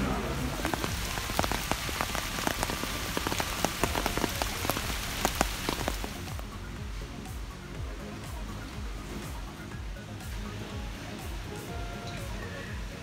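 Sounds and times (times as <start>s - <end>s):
rain pattering: 0.0s - 13.0s.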